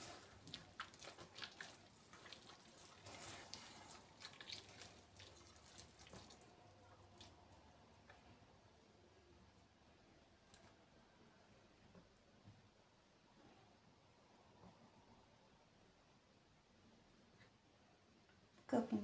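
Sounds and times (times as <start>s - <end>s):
hand squelching dough: 0.0s - 8.2s.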